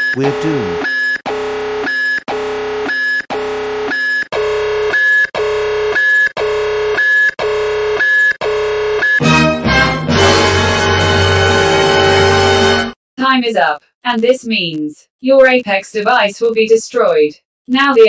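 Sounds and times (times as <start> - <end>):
harsh countdown buzzer: 0.0 - 13.0.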